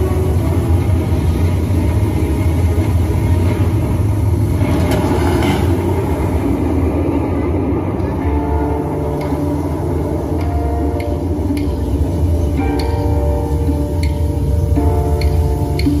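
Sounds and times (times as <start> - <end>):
low rumble over loudspeakers: 0.0 - 16.0.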